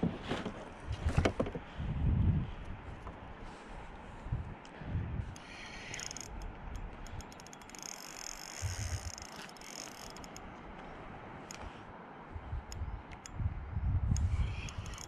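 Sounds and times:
low rumble of wind: 0:00.0 - 0:15.0
fishing reel whirring and clicking: 0:05.3 - 0:10.5, 0:14.2 - 0:15.0.

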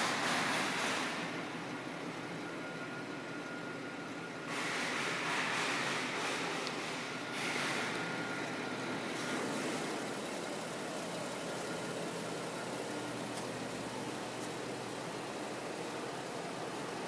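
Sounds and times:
car engine idling: 0:06.1 - 0:17.0.

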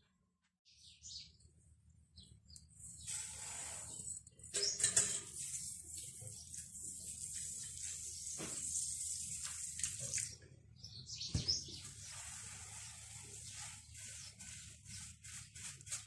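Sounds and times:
water trickling onto grains: 0:05.2 - 0:10.4, 0:11.8 - 0:16.0
fingers rubbing damp grains: 0:11.8 - 0:16.0.

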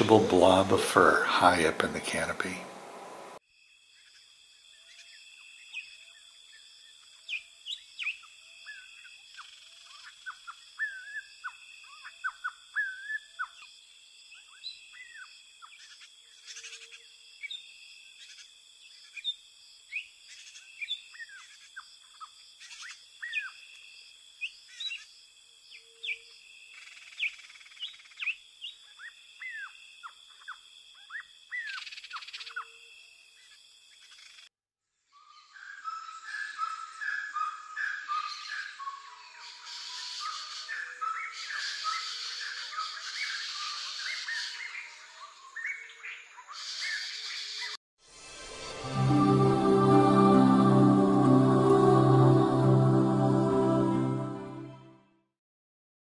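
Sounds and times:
birds chirping and whistling: 0:35.3 - 0:44.8.

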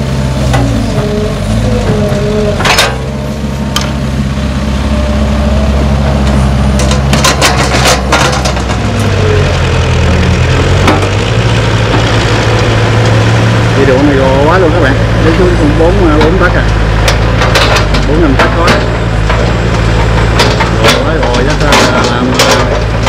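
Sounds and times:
excavator diesel engine running: 0:00.0 - 0:23.0
soil clattering into truck bed: 0:06.8 - 0:08.9.

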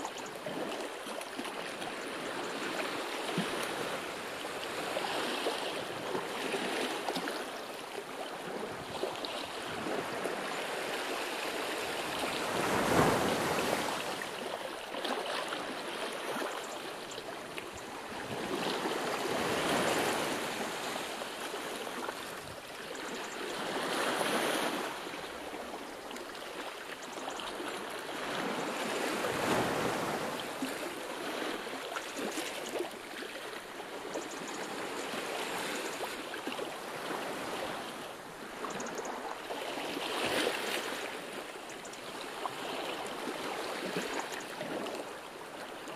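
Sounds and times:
sea waves washing in: 0:08.7 - 0:16.6.

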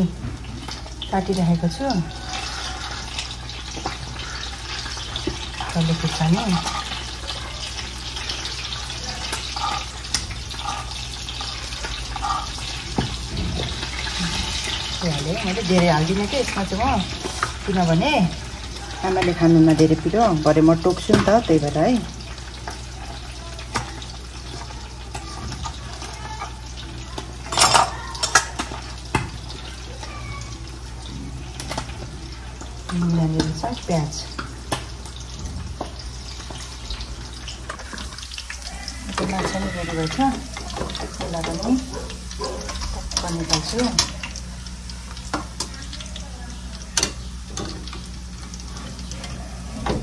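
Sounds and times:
fish frying in hot oil: 0:00.0 - 0:50.0
kitchen knocks and clatters: 0:02.3 - 0:29.7, 0:39.0 - 0:44.4, 0:47.0 - 0:50.0.

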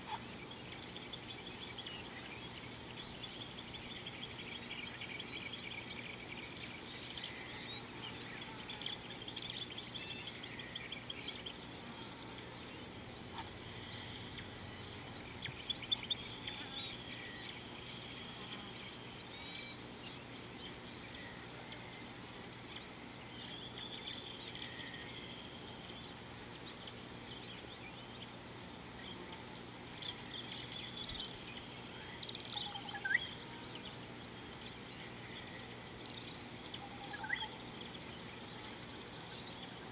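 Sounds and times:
faint insect hum: 0:00.0 - 0:39.9
birds chirping and trilling: 0:00.1 - 0:11.7, 0:12.8 - 0:21.4, 0:30.0 - 0:38.3.

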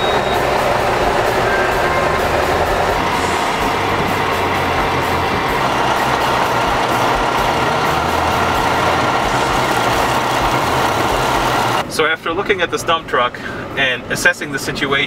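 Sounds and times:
dump truck engine running: 0:00.0 - 0:11.9.

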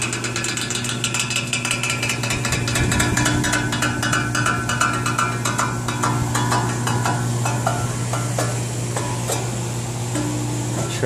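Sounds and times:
air conditioner humming: 0:00.0 - 0:11.0
fan blade ticking against baffle: 0:00.0 - 0:11.0.

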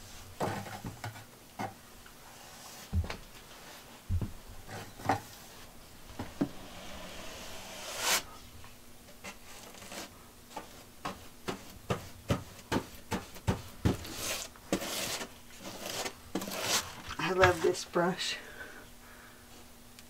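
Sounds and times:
paintbrush brushing on wall: 0:05.4 - 0:08.5.

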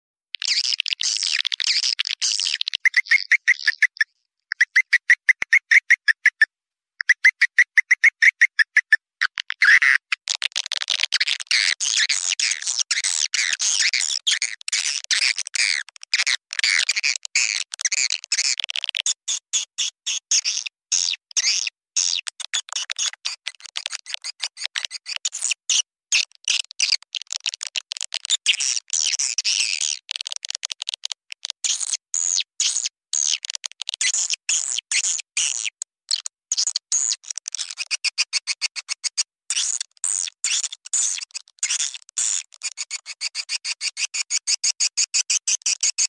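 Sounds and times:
swiftlets chirping and twittering: 0:00.4 - 0:09.0.

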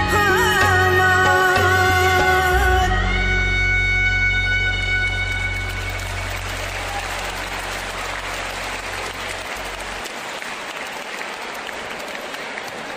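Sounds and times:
recorded music: 0:00.0 - 0:09.7
audience applauding: 0:04.8 - 0:12.9.

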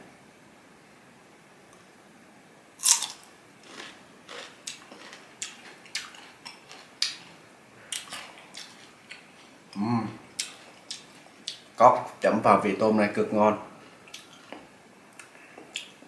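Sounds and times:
crunchy chewing: 0:02.8 - 0:09.7.

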